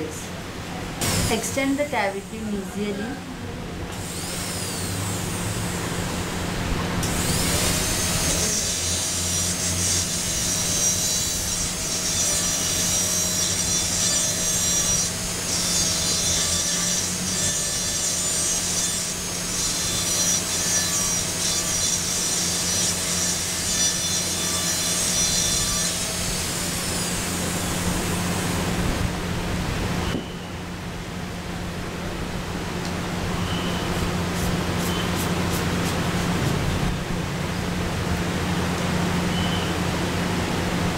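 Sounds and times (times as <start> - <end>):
dental drill whining: 1.0 - 2.8, 3.9 - 6.0, 7.0 - 28.5.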